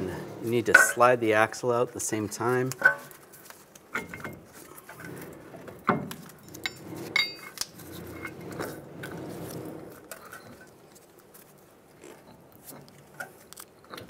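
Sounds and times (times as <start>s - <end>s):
metal clinks and clanks: 6.4s - 7.6s.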